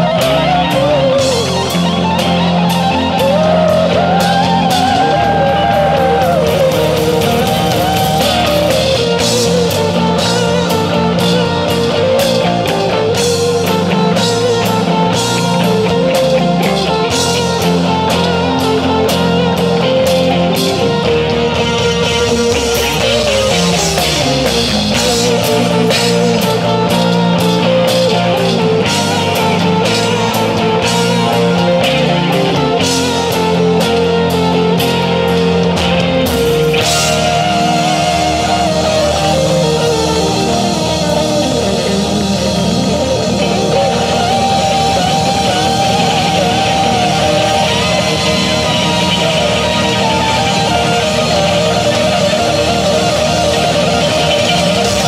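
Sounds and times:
drums: 0.0s - 55.0s
electric guitars: 0.0s - 55.0s
keyboard: 0.0s - 55.0s.

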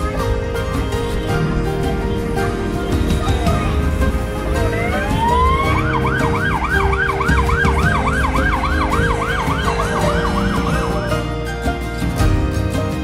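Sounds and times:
low engine rumble: 0.0s - 11.8s
siren wailing and yelping: 4.6s - 11.2s.

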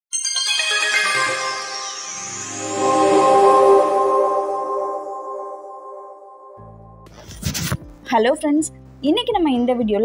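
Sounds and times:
chiming chord: 0.1s - 7.1s.

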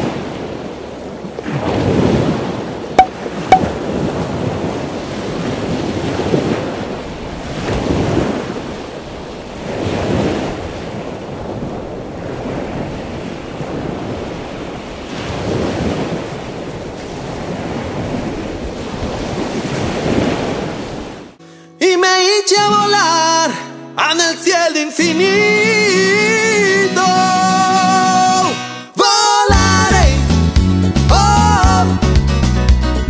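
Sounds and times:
ocean waves washing ashore: 0.0s - 21.4s.

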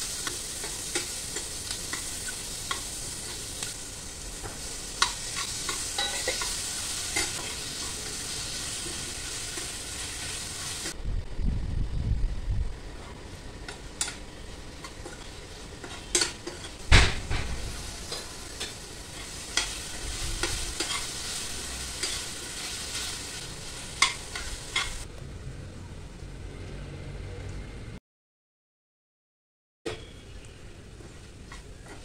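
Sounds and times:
onions and tomato sizzling in oil: 0.0s - 11.0s, 12.6s - 25.1s, 29.9s - 32.0s
spoon knocking and scraping a pan: 4.4s - 7.6s, 14.8s - 21.4s, 24.0s - 25.0s.

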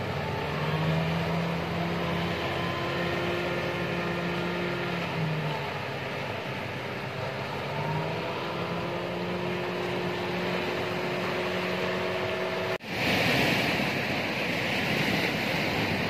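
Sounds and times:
boat engine running: 0.0s - 16.0s
surf breaking: 12.8s - 16.0s.

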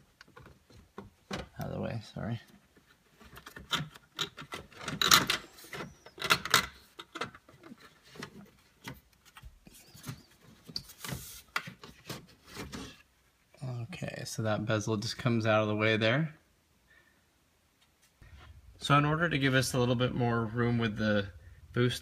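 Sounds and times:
plastic rubbing and scraping: 2.5s - 13.1s.

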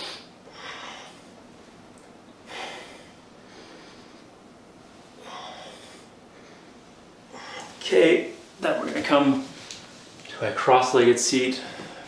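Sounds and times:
man breathing hard: 0.0s - 1.4s, 2.4s - 4.3s, 5.2s - 7.8s, 11.6s - 12.0s.

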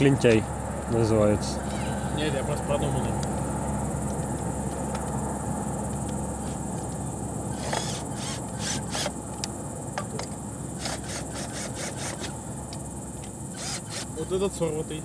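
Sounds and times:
crickets chirring: 0.0s - 15.0s
cordless drill rasping bursts: 7.5s - 9.2s, 10.8s - 12.4s, 13.5s - 14.2s.

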